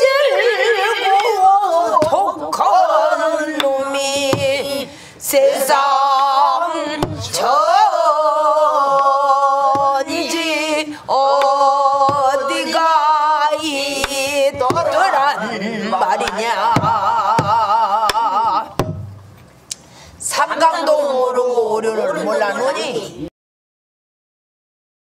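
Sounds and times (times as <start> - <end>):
person singing with vibrato: 0.0 - 18.9, 20.2 - 23.3
barrel drum strikes: 16.7 - 17.6, 18.8 - 19.2.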